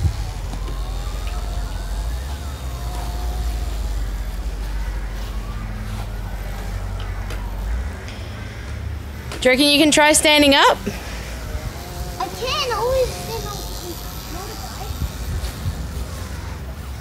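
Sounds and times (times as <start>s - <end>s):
electric motor whining: 0.0s - 8.2s, 9.4s - 17.0s
steady low rumble: 0.0s - 13.5s.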